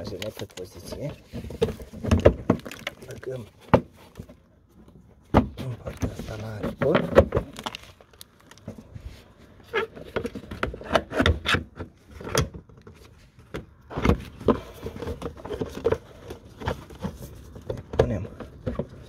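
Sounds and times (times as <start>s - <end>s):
plastic rubbing scrapes: 5.7s - 19.0s.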